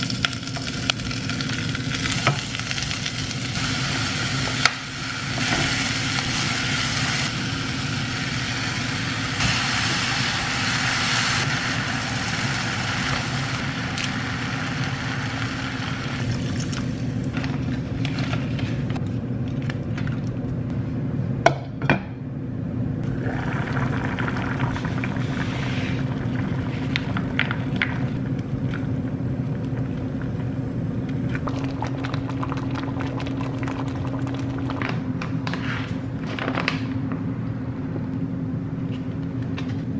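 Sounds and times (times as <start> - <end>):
vegetables sizzling in a saucepan: 0.0 - 16.6
low hum: 0.9 - 36.2.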